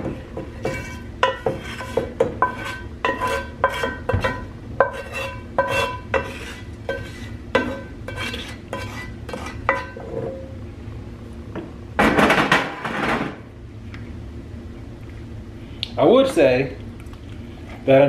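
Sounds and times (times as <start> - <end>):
scraping and stirring in pot: 0.0 - 10.4.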